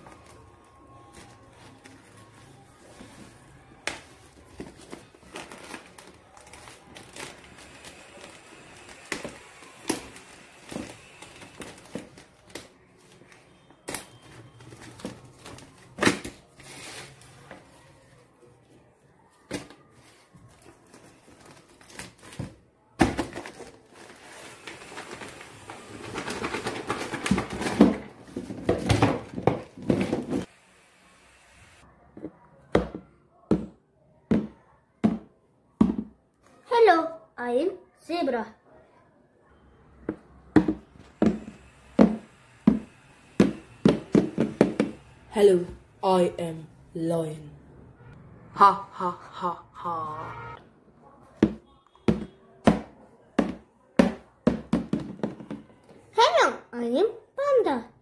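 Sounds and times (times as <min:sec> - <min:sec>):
plastic packaging crackling: 0:00.0 - 0:17.4, 0:20.4 - 0:30.4
plastic bag crinkling: 0:04.4 - 0:12.5, 0:23.3 - 0:27.9.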